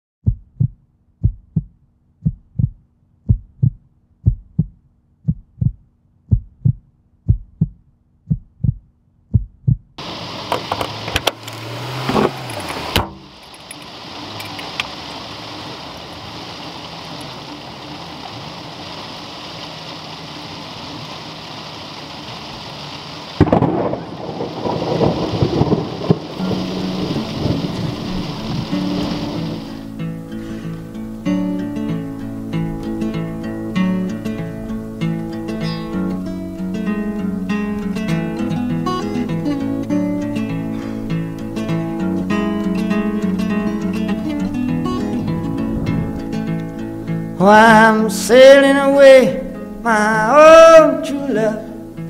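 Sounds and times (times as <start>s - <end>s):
heartbeat thumps: 0.2s - 10.0s, 44.8s - 46.5s
rain: 10.0s - 52.0s
thunder clap: 23.4s - 29.8s, 44.5s - 47.2s.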